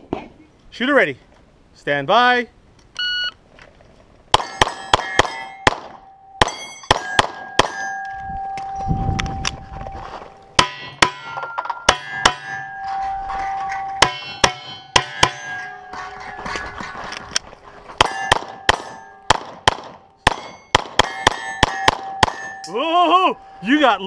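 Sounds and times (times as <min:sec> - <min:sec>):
pistol shots: 0:04.3 - 0:07.9, 0:18.0 - 0:22.6
steel plate clanging and ringing: 0:04.4 - 0:19.3, 0:20.2 - 0:24.0.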